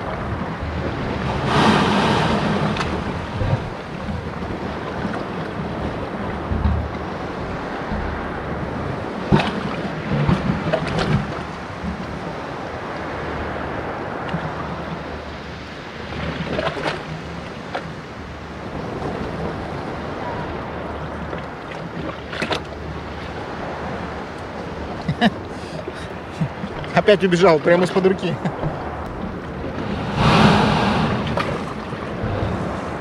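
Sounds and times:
small waves washing over rocks: 0.0s - 12.5s, 25.7s - 33.0s
wind on microphone: 0.0s - 21.4s, 28.5s - 33.0s.

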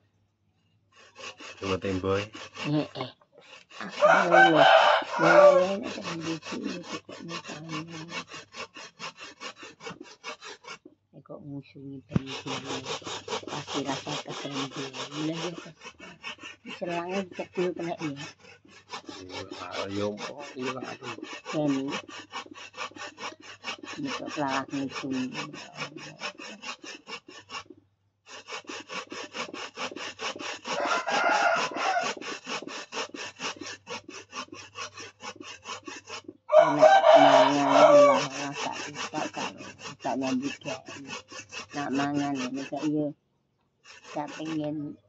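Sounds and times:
coconut grating on metal grater: 1.0s - 10.9s, 11.9s - 43.2s, 43.8s - 45.0s
chicken calling: 3.8s - 6.3s, 30.7s - 32.3s, 36.5s - 38.5s.

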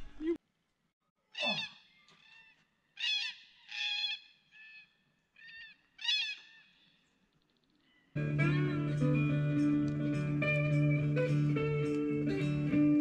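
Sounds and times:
birds calling: 1.3s - 8.2s.

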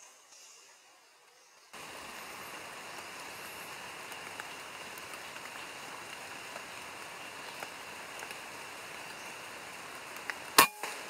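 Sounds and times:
rain dripping on forest canopy: 1.1s - 11.0s.

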